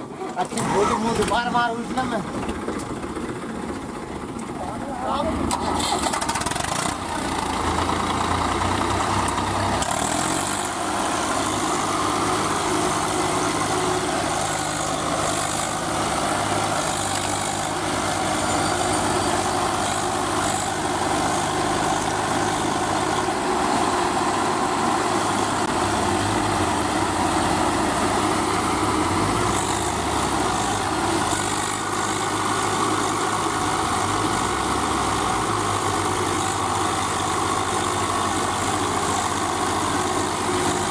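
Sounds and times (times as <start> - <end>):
tractor diesel engines running: 0.0 - 40.9.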